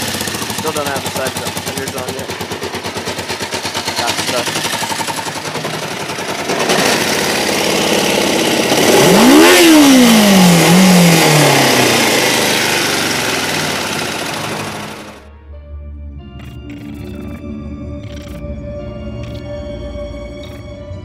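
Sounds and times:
motorcycle engine revving: 0.0 - 15.3.

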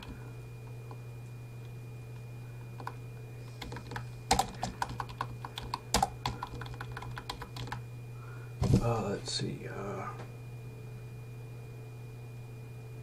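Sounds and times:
keyboard typing: 3.6 - 7.8.

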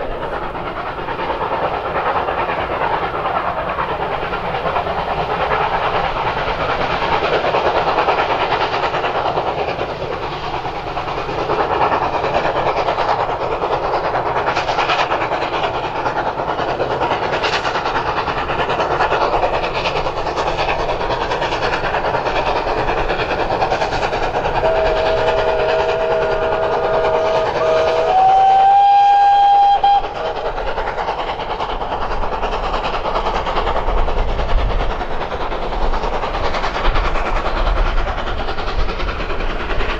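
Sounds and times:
steam train running past: 0.0 - 39.9
steam whistle: 24.6 - 30.4.

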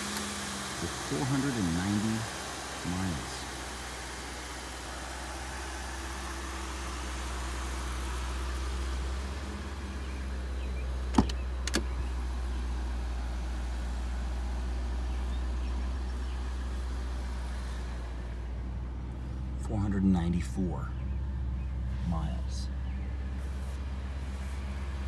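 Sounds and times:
car engine idling: 0.0 - 25.0
car door latch clicks: 11.1 - 12.0.

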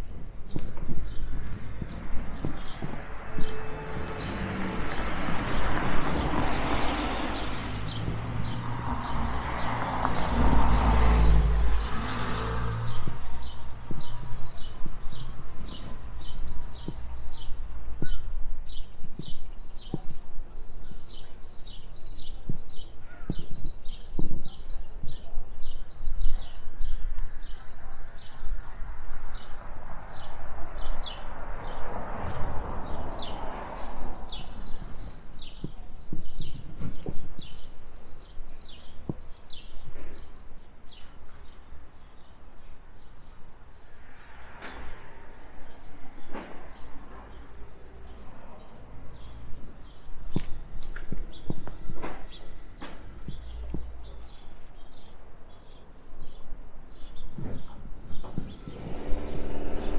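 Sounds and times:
car passing: 1.1 - 17.4, 28.8 - 37.6, 43.7 - 54.7, 58.2 - 59.9.

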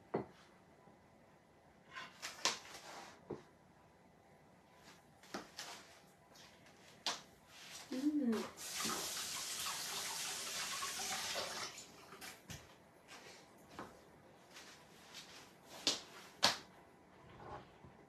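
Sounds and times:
water running from tap: 8.4 - 12.4.

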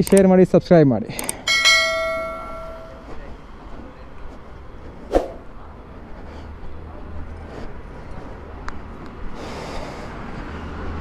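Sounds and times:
click: 0.0 - 0.3
faint street noise: 0.0 - 11.0
bright chime ringing: 1.5 - 3.2.

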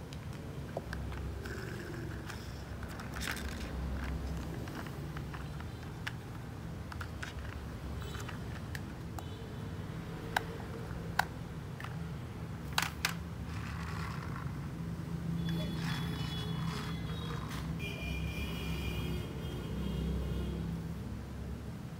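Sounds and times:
plastic toy clicks and taps: 0.1 - 9.3, 10.2 - 12.0, 12.6 - 14.2.

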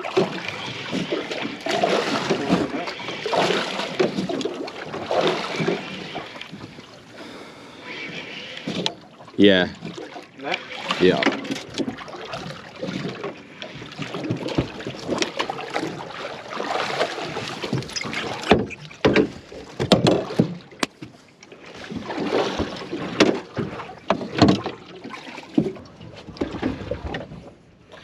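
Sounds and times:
water washing against boat: 0.0 - 28.0
sharp knocks on boat: 14.1 - 15.5, 17.3 - 21.2, 22.5 - 24.8.

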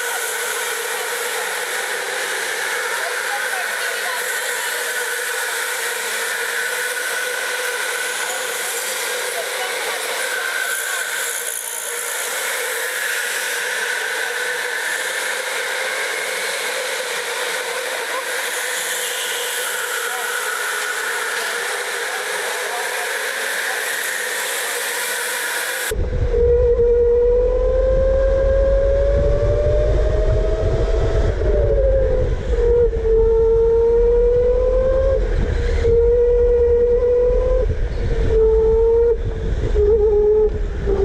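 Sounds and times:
electric go-kart motor whine: 0.0 - 41.0
heavy low rumble: 25.9 - 41.0.

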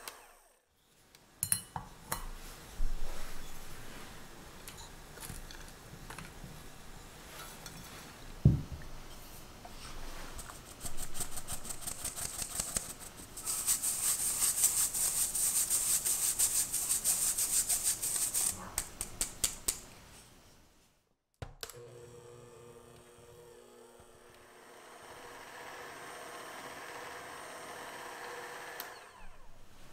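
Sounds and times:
electric hand mixer humming: 21.8 - 29.6.

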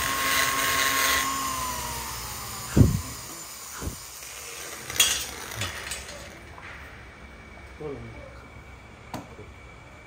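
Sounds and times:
grinder whine winding down: 0.0 - 5.7.

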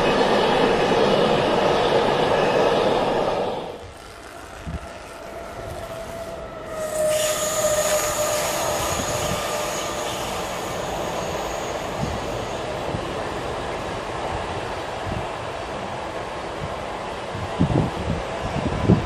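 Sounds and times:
train wheels rumbling on rail: 0.0 - 19.0
thin whining tones: 3.6 - 12.8.

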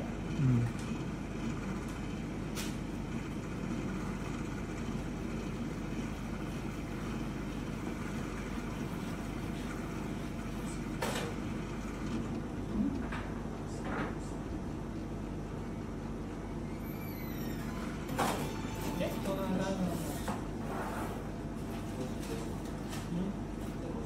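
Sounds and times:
low background hum: 0.0 - 24.0.

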